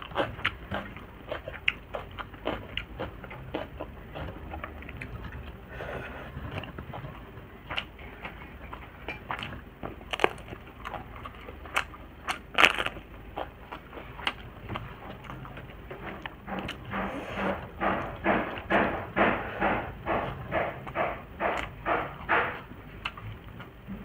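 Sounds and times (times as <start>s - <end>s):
close-up chewing: 0.0s - 24.0s
crunching crisp papad: 10.0s - 15.4s.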